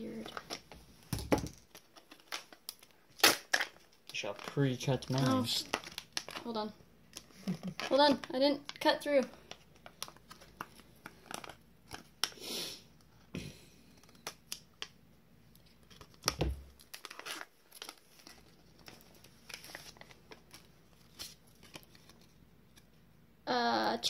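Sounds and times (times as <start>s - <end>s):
packaging tearing and crinkling: 1.4s - 8.3s, 9.8s - 12.4s, 15.6s - 22.3s.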